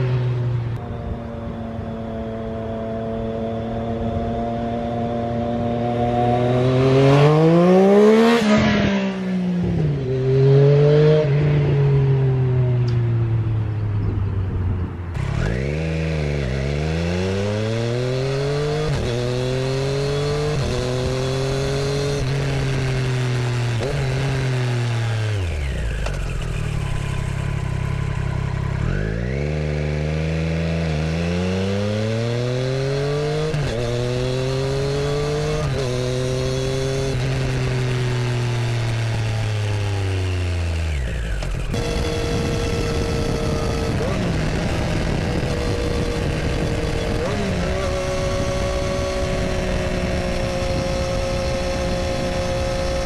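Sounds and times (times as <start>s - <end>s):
motorcycle accelerating through gears: 0.0s - 53.0s
wind noise: 13.8s - 15.6s, 41.1s - 53.0s.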